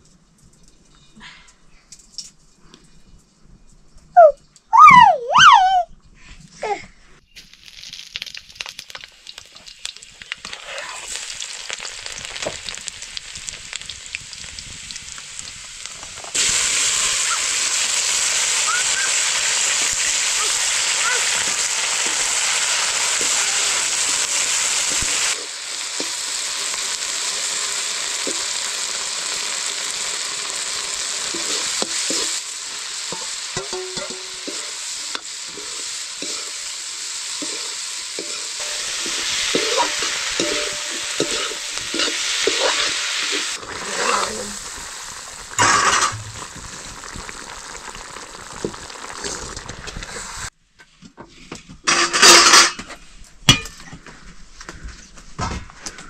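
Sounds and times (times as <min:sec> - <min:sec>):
food sizzling in hot oil: 0:07.4 - 0:50.5, 0:51.9 - 0:52.7
spoon scraping and knocking pan: 0:33.1 - 0:36.7, 0:37.4 - 0:43.5, 0:51.8 - 0:52.9.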